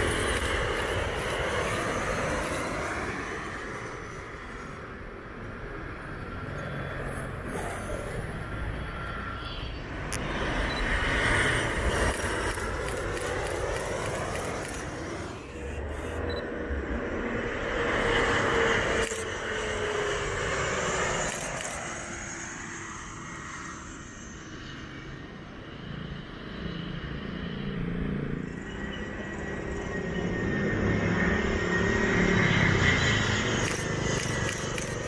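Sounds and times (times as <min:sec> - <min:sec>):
jet engine high whine: 0:00.0 - 0:35.0
jet engines passing low: 0:00.0 - 0:35.0.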